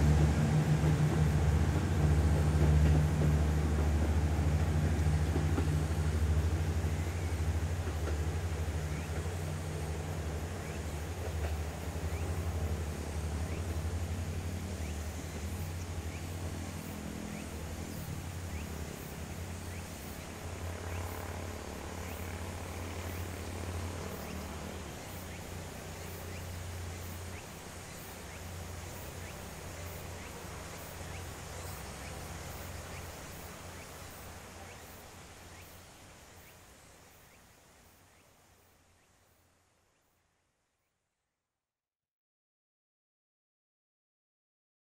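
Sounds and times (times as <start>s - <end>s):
diesel railcar engine humming: 0.0s - 38.2s
insects chirping: 0.0s - 40.4s.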